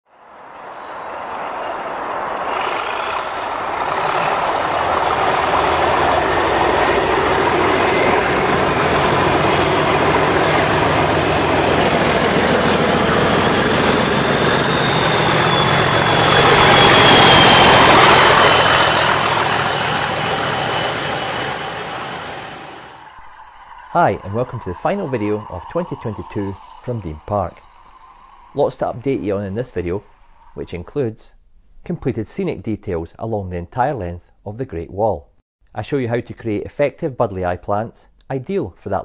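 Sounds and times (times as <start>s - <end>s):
diesel locomotive engine running: 0.2s - 30.6s
hiss: 0.5s - 6.3s, 23.0s - 30.6s.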